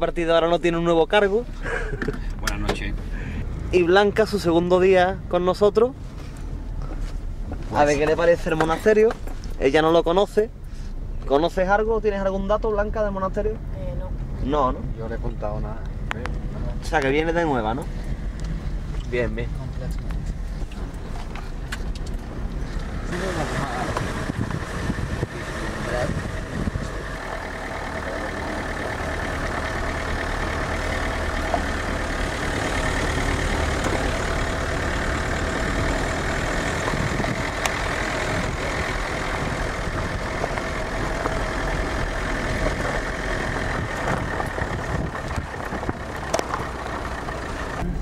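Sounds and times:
car engine running: 0:00.0 - 0:48.0
tyres rolling over dirt track: 0:23.1 - 0:47.8.

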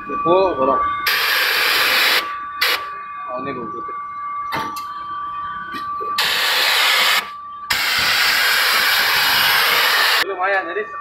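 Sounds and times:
compressed air hissing: 0:06.2 - 0:10.2.

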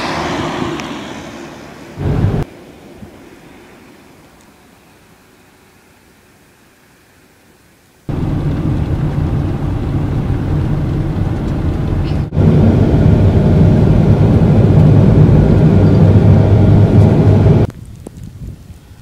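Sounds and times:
tyres rumbling on snowy road: 0:00.0 - 0:03.1, 0:08.1 - 0:19.0
van engine drone: 0:00.0 - 0:06.0, 0:08.1 - 0:17.7.

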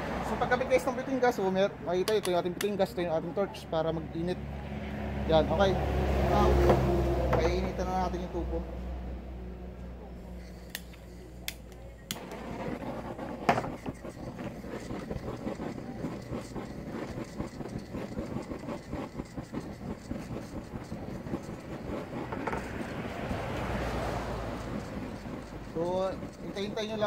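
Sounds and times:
torch flame rushing: 0:10.4 - 0:27.0
gas torch igniter clicks: 0:10.7 - 0:12.4.

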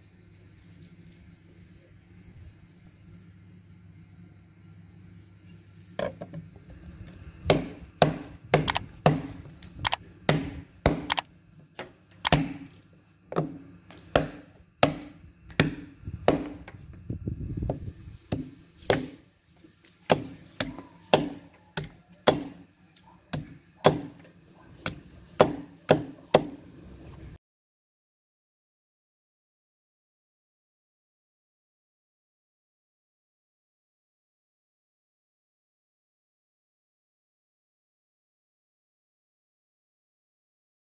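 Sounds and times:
knife chopping into wood: 0:07.5 - 0:09.4, 0:10.3 - 0:11.2, 0:12.3 - 0:12.7, 0:13.4 - 0:16.8, 0:18.3 - 0:19.3, 0:20.0 - 0:22.6, 0:23.3 - 0:24.2, 0:24.8 - 0:26.6.

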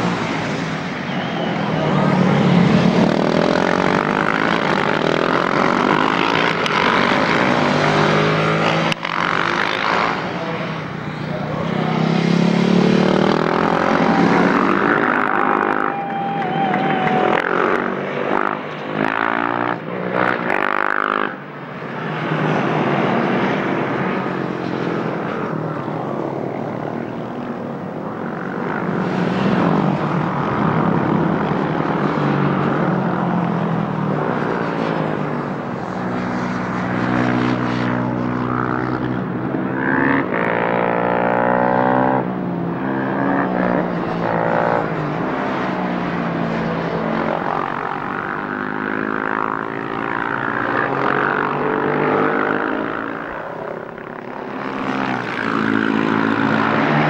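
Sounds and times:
motorcycle engines: 0:00.0 - 0:57.0
motorcycle engine revving: 0:02.3 - 0:10.6, 0:11.3 - 0:16.0, 0:17.2 - 0:21.4, 0:47.4 - 0:57.0.

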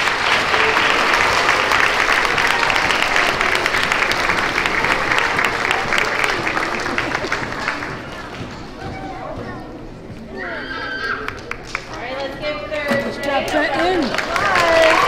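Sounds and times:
children applauding: 0:00.0 - 0:09.4, 0:10.6 - 0:12.0, 0:13.7 - 0:15.0.

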